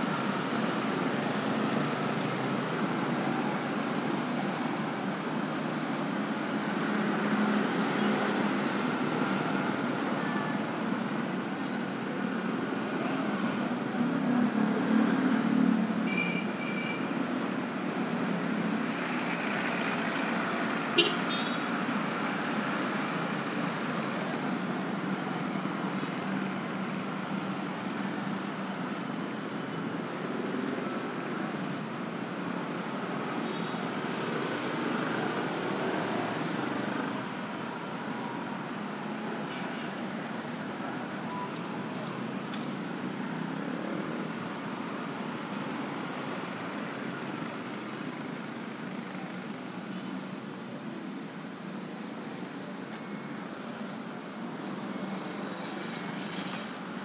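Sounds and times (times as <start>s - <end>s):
scooters and cars passing: 0.0s - 57.0s.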